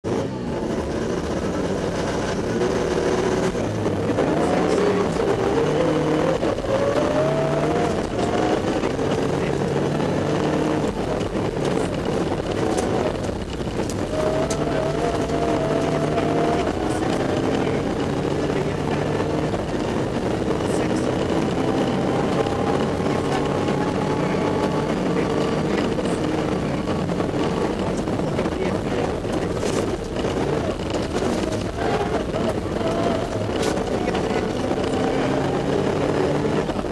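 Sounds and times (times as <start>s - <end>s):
car engine revving: 0.0s - 36.9s
tyre and road noise: 0.0s - 36.9s.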